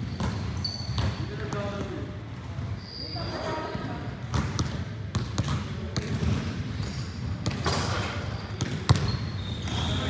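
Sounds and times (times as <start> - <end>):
basketballs bouncing on gym floor: 0.0 - 10.0
thin high squeak: 0.1 - 1.0, 2.8 - 3.6, 8.0 - 10.0.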